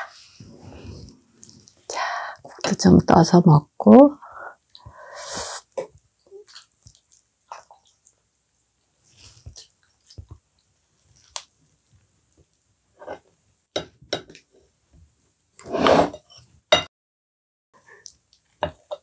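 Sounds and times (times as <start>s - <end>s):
soft chewing: 1.1s - 1.9s, 5.8s - 12.7s.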